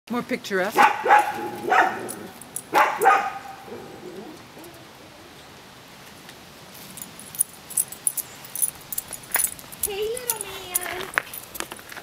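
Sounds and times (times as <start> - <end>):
dog barking: 0.8 - 3.9.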